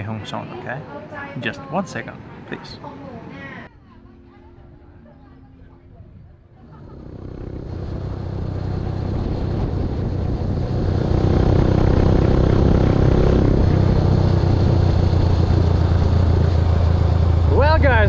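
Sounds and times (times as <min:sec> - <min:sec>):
road noise: 0:06.1 - 0:18.0
motorbike engine running: 0:06.6 - 0:18.0.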